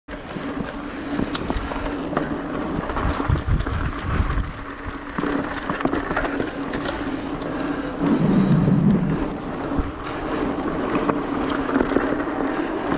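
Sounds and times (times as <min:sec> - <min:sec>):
bike rattles and clicks: 0:00.1 - 0:12.9
mountain bike tyre and drivetrain noise: 0:00.1 - 0:12.9
low rumbling thumps: 0:08.1 - 0:09.9.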